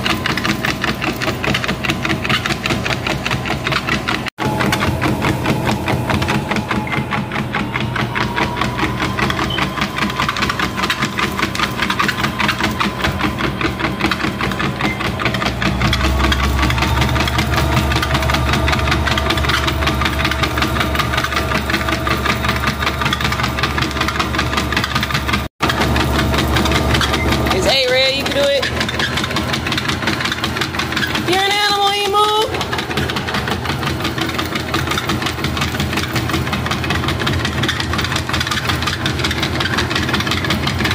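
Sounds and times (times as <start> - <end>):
treadmill motor and belt running: 0.0 - 40.9
low hum: 4.4 - 30.4.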